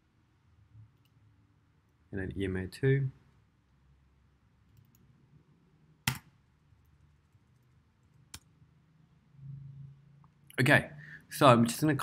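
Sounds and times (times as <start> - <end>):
computer mouse click: 6.0 - 6.3.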